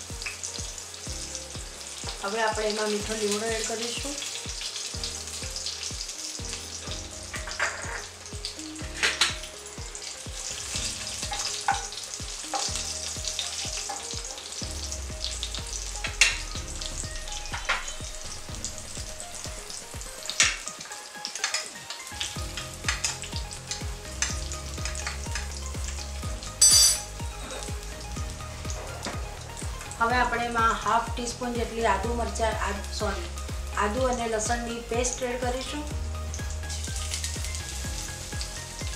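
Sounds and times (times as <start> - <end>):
leaves sizzling in hot oil: 0.0 - 38.9
sharp crackles: 2.0 - 25.6.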